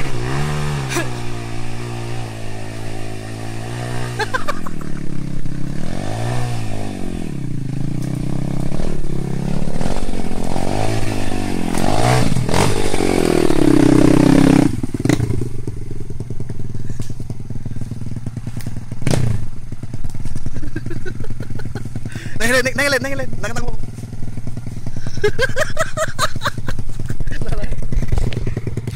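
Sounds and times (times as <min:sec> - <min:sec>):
motorcycle engine revving: 0:00.0 - 0:28.9.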